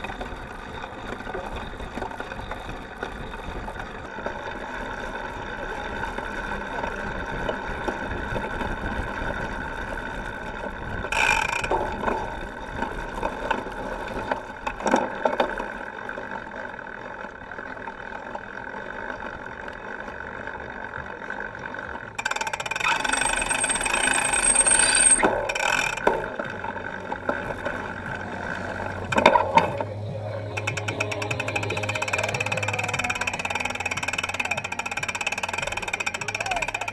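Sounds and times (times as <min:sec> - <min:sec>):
bike chain and frame rattling: 0:00.0 - 0:36.9
tyres rolling on grass and sand: 0:25.2 - 0:36.9.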